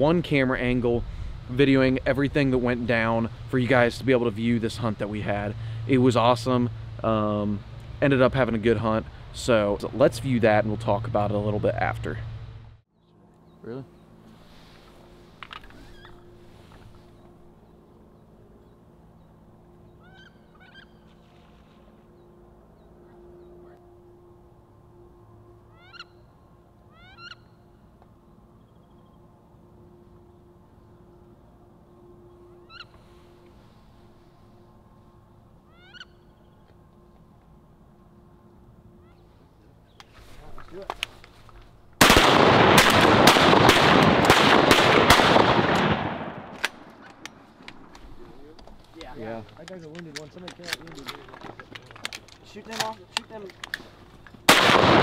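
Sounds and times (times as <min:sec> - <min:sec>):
faint steady hum: 0:00.0 - 0:42.7
shotgun shots: 0:42.0 - 0:46.9, 0:54.5 - 0:55.0.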